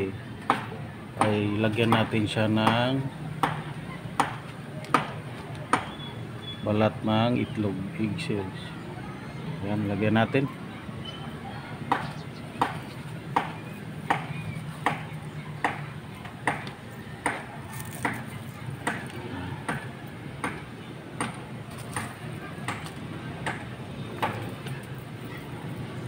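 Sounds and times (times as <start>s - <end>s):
sharp knocks: 0.4s - 6.0s, 11.9s - 24.5s.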